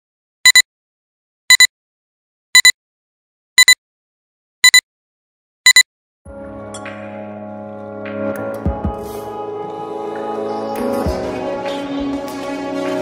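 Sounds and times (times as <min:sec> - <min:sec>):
short high electronic beeps: 0:02.6 - 0:02.8, 0:04.6 - 0:04.8.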